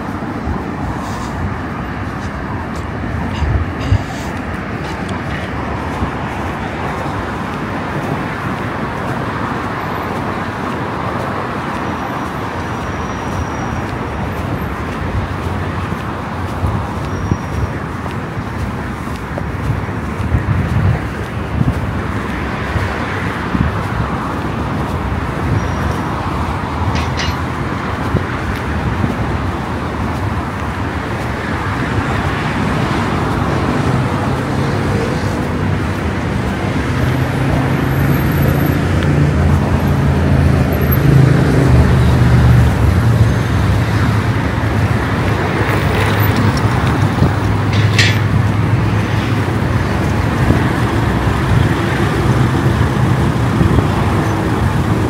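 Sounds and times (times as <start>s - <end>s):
passing vehicles: 0.0s - 55.0s
heavy engine running: 38.7s - 55.0s.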